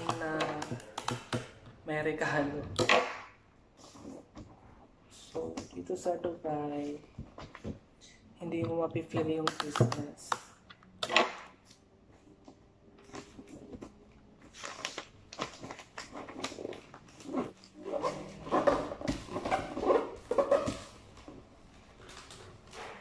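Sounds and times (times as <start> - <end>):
wrapping paper rustling and crinkling: 13.0 - 23.0.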